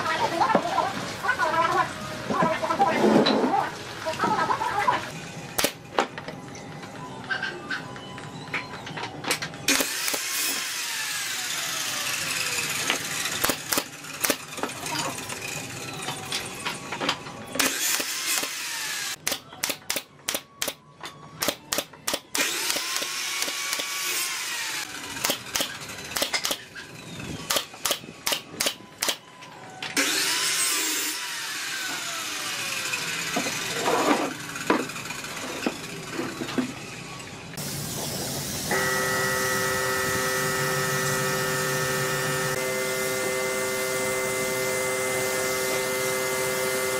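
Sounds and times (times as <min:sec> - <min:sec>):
power tool whining: 0:09.7 - 0:16.3, 0:17.6 - 0:19.2, 0:22.3 - 0:28.3, 0:29.9 - 0:46.9.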